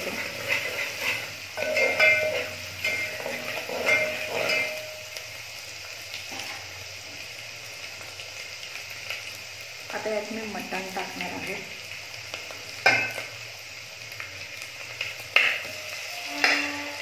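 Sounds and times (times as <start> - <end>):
spoon scraping a metal pot: 0.0 - 4.8, 15.4 - 17.0
onions sizzling in hot oil: 0.0 - 17.0.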